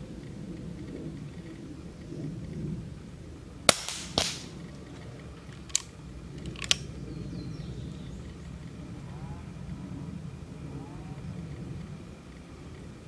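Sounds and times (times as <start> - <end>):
air rifle shot crack: 3.7 - 4.6
rifle action clicks: 3.7 - 6.9
softer crack: 3.7 - 6.9.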